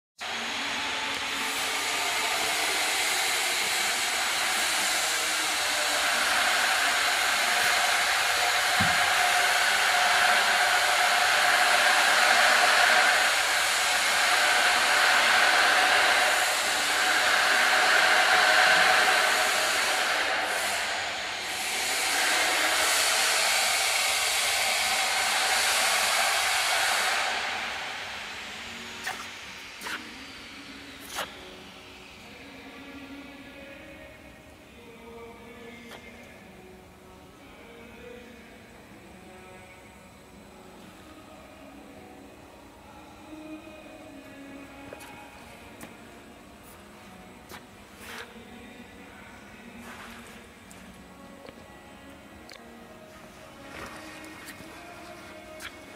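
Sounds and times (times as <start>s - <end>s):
hissing whooshing machinery: 0.2s - 34.0s.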